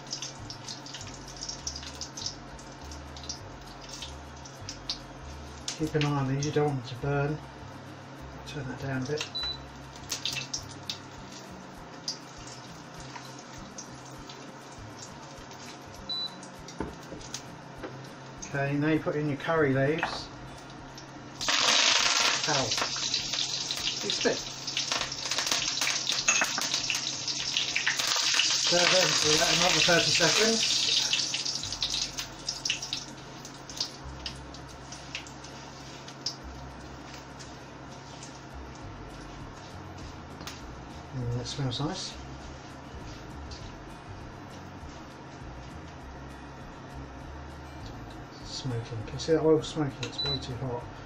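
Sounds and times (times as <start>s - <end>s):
oil crackling and popping: 0.0s - 6.1s, 9.9s - 16.0s, 21.0s - 37.5s
spices sizzling in hot oil: 0.0s - 18.6s, 20.5s - 45.8s.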